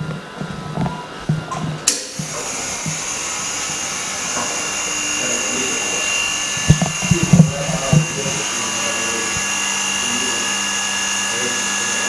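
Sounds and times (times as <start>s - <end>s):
vacuum pump hissing and whining: 0.0s - 12.0s
low knocks: 6.6s - 8.4s.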